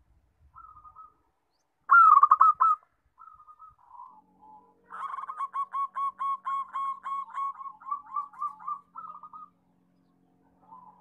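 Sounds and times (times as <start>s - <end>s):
dove cooing trill: 0.6s - 1.2s, 1.9s - 9.6s, 10.6s - 11.0s.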